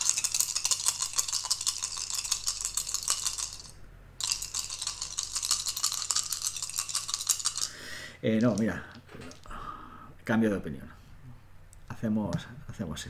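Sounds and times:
dice rattling: 0.0 - 9.4.

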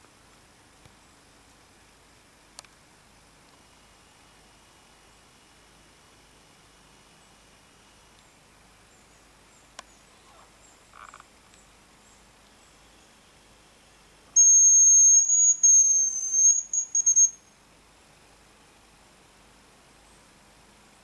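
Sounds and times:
high bird decoy whistle: 14.4 - 17.4.

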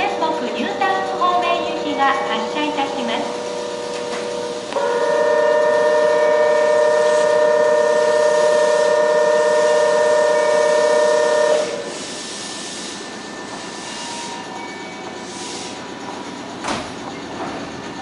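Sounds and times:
station background noise: 0.0 - 18.0.

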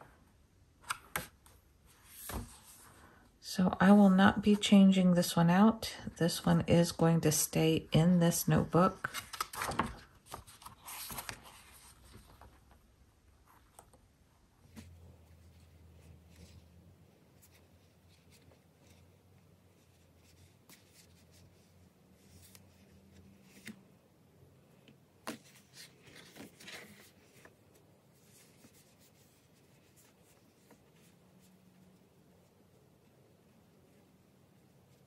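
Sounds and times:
paper rustling: 1.9 - 2.9, 9.0 - 12.8, 25.2 - 32.0.

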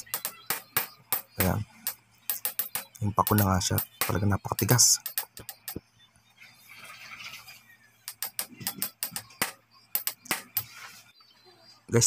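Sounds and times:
hammer tapping metal driver: 0.0 - 5.8, 8.0 - 10.7.

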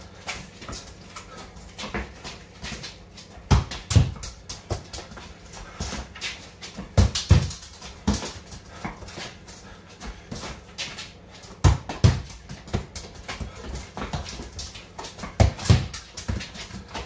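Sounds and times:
football dribbled on concrete: 0.0 - 17.0
trainer scuffs: 0.1 - 17.0
ball thuds: 6.8 - 9.1.

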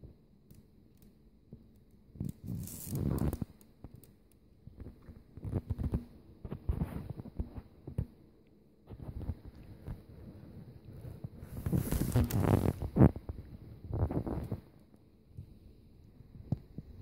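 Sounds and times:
blanket rustling: 11.3 - 13.1.

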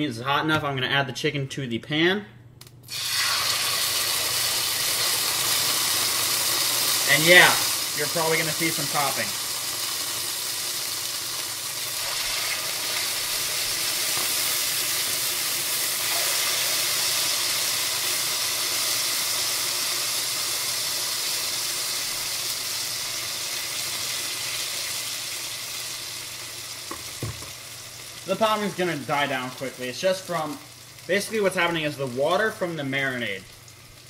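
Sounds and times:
oil spitting: 2.8 - 3.9
chicken sizzling in hot oil: 2.9 - 34.0.

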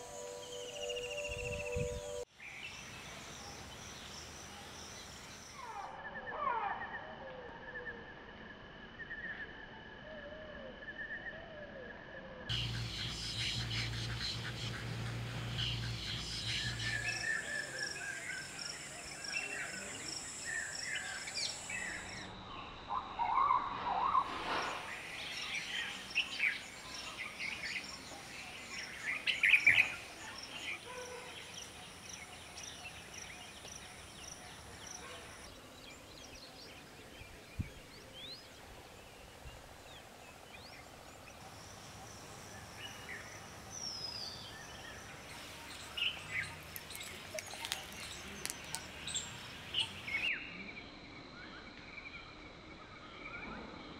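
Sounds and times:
wild birds chirping and whistling: 0.0 - 50.7
high thin pulsing hum: 12.5 - 17.4.

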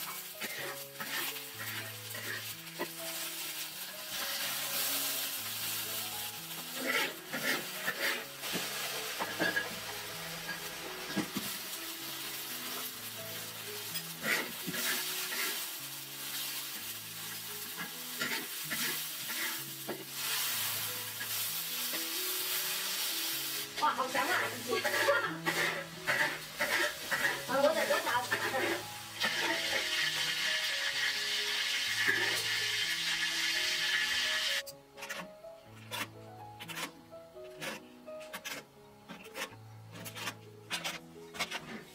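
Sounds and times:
food sizzling in hot oil: 0.0 - 34.7
soft background music: 0.0 - 41.9
spatula tossing food in wok: 0.1 - 29.9, 37.6 - 41.9.

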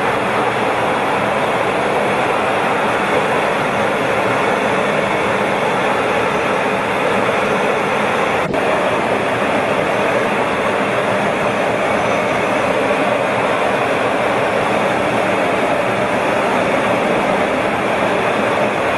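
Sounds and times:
jet engine rushing in cockpit: 0.0 - 18.9.

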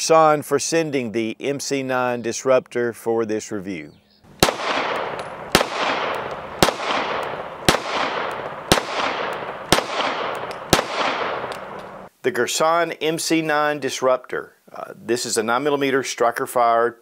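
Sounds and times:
pistol shots: 4.4 - 12.1.

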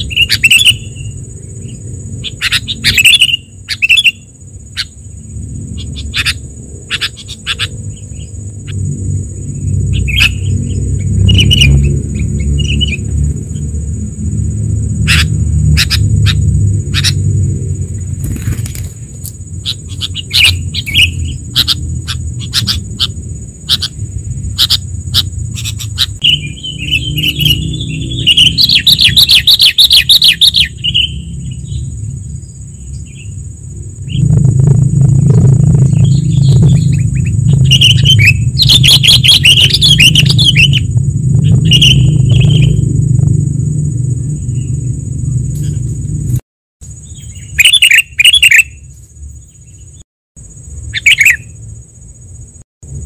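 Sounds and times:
bird chirps and chattering: 0.0 - 5.0, 5.7 - 8.8, 9.9 - 13.0, 15.0 - 17.2, 19.6 - 31.9, 35.3 - 42.8, 47.0 - 48.8, 50.9 - 51.5
motorcycle rumble: 4.4 - 47.5.

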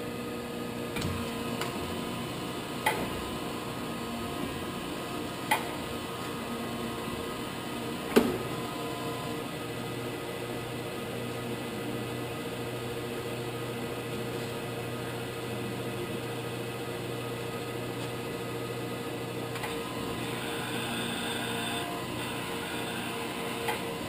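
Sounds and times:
grinder motor humming: 18.8 - 24.0.

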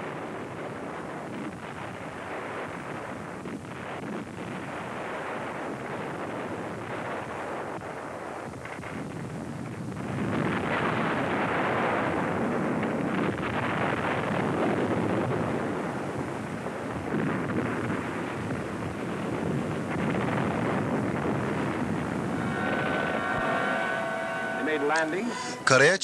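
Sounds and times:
battle rumbling roar: 22.1 - 25.5.

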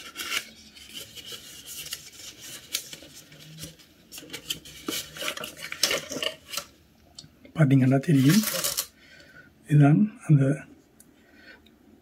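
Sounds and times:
cardboard scraping and rubbing: 0.0 - 6.7.

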